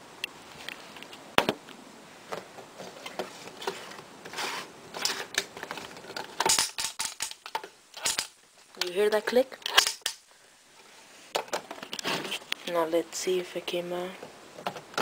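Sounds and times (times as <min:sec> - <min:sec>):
plastic parts rubbing: 0:02.3 - 0:08.9, 0:10.8 - 0:12.6.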